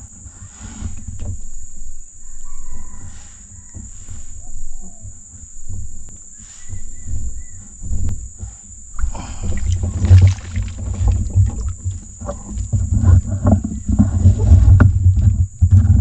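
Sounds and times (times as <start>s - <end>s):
low rumbling: 4.0s - 16.0s
branches rustling and crackling: 4.2s - 16.0s.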